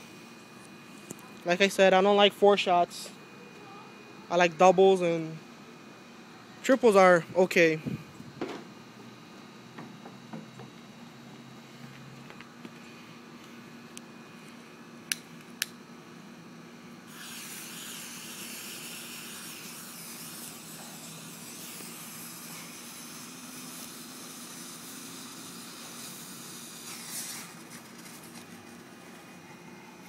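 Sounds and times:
firework fuse hissing: 17.0 - 29.2.

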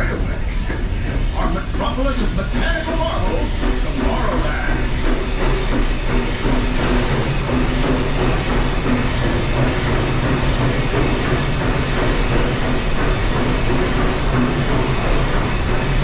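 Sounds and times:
train wheels rumbling on rails: 0.0 - 16.0.

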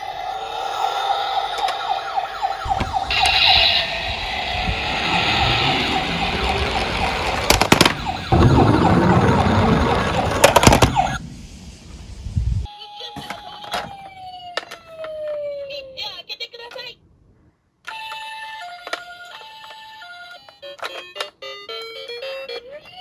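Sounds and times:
toy electronic siren wailing: 0.0 - 11.2, 12.8 - 16.2, 17.9 - 23.0
plastic wheels rolling on wood: 6.0 - 11.2.

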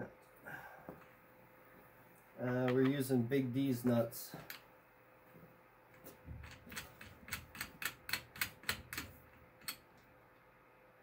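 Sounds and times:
metal nuts clicking onto terminals: 6.4 - 9.9.

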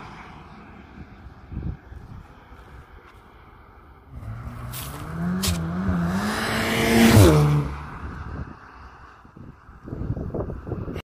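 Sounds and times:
car engine accelerating hard: 4.1 - 8.2.

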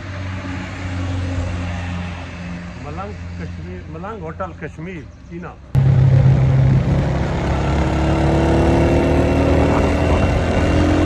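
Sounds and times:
wind and road noise: 0.0 - 11.0
motorcycle engine running: 5.8 - 11.0.

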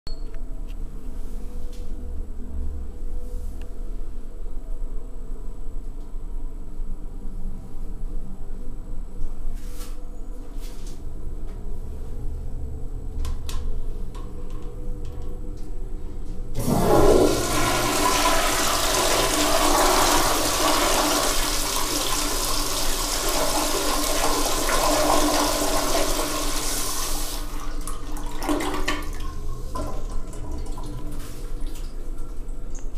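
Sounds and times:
toilet flushing: 16.6 - 32.4.

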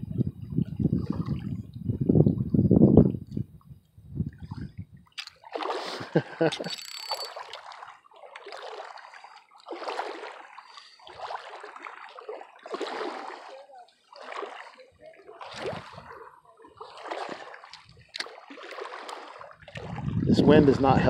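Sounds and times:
small waves lapping against rocks: 4.4 - 21.0.

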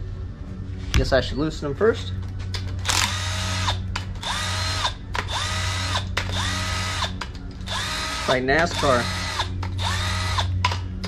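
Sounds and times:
cordless impact tool bursts: 2.9 - 7.1, 7.7 - 10.5.

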